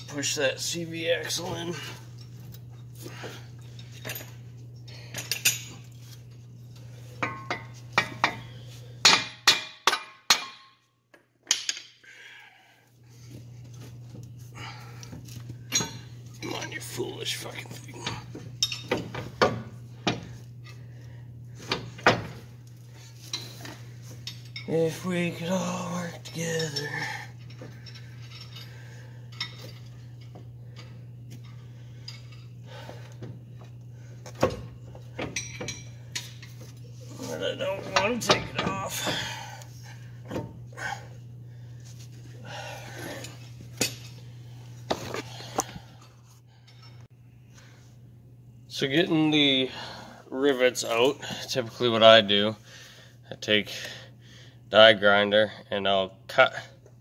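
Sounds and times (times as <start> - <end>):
steady low hum: 0.0 - 57.0
metal tools clinking: 3.6 - 6.2, 17.9 - 19.1, 23.2 - 32.6.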